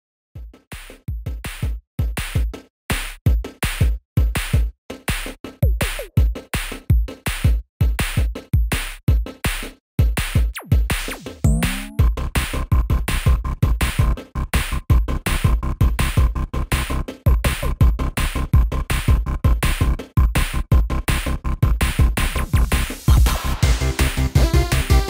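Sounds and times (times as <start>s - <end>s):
drum machine beat: 0.4s - 14.0s, 21.6s - 25.0s.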